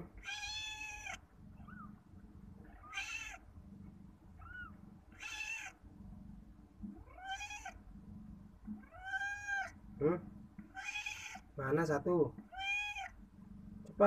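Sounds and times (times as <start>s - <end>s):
cat meowing: 0.2s - 1.9s, 2.6s - 3.4s, 4.4s - 5.8s, 7.0s - 7.8s, 8.8s - 9.8s, 10.7s - 11.5s, 12.5s - 13.2s.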